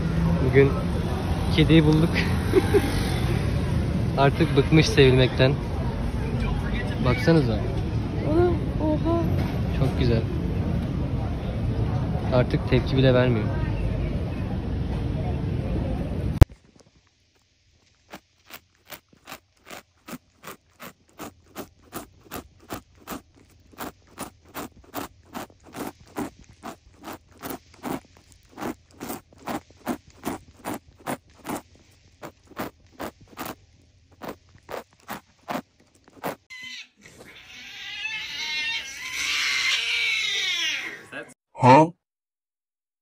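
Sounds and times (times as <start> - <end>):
cat sniffing: 19.7 - 36.5
cat wavering cry: 36.5 - 41.1.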